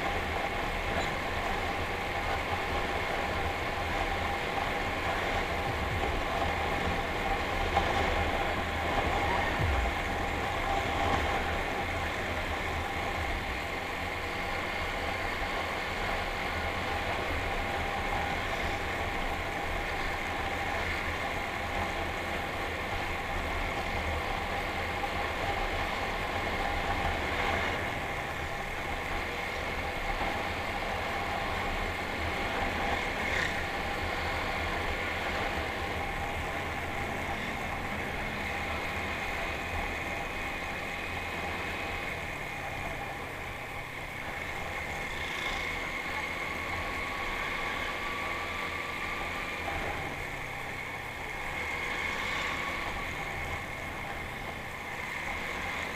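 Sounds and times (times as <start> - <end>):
road noise: 0.0 - 55.9
traffic: 0.0 - 55.9
motorcycle engine running: 5.0 - 15.2.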